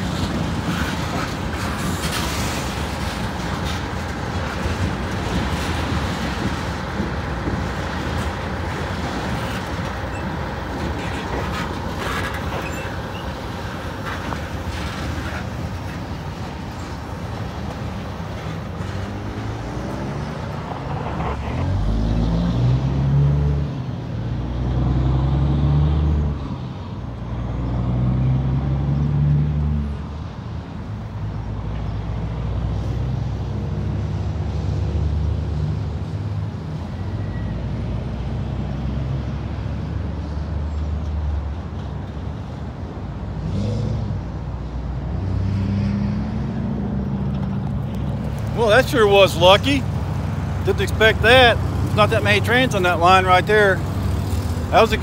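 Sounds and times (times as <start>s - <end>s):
train wheels on rails: 0.0s - 21.2s.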